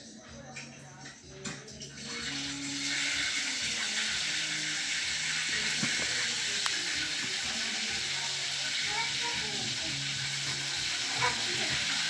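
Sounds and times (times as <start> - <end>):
steady rushing hiss: 2.5 - 12.0.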